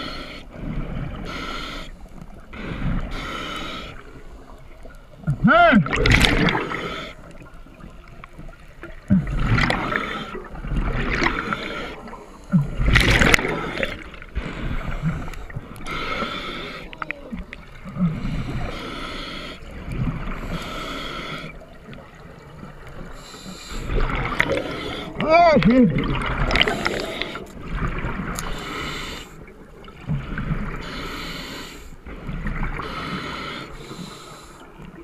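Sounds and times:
heavy breathing through snorkel: 0:00.0 - 0:04.5, 0:09.4 - 0:17.1, 0:17.9 - 0:21.6, 0:23.0 - 0:25.2, 0:26.5 - 0:27.7, 0:28.4 - 0:29.5, 0:30.1 - 0:34.8
water gurgling and sloshing: 0:00.0 - 0:35.0.

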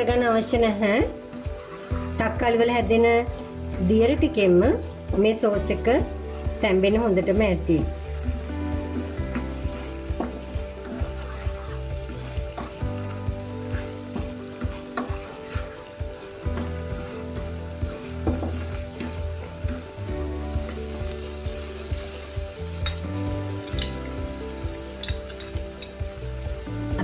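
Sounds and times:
sauce bubbling and sizzling in a pan: 0:00.0 - 0:27.0
spatula clicking and scraping a pan: 0:01.6 - 0:02.1, 0:12.5 - 0:17.2, 0:22.8 - 0:24.2.

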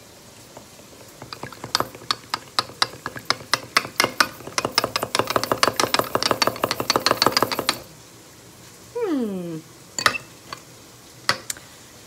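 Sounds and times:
whisk clicking against bowl: 0:00.5 - 0:07.9.

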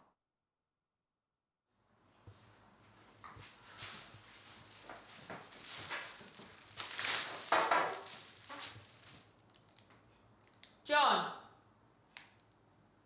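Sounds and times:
plastic bag crinkling: 0:03.7 - 0:10.8.

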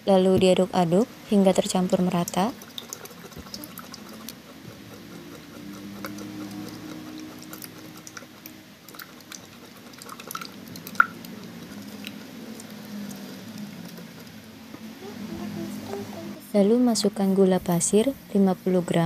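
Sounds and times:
spatula stirring liquid in jug: 0:01.3 - 0:14.6.

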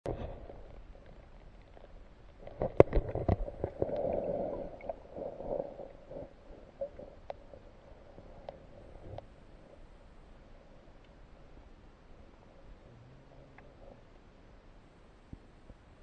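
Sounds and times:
water gurgling and sloshing: 0:00.1 - 0:12.8.

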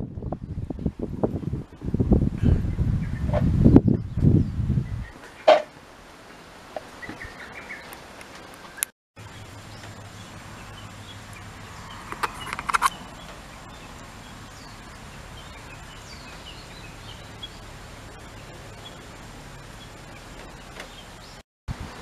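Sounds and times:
birds chirping: 0:06.3 - 0:22.0
sharp clicks: 0:12.1 - 0:13.4.

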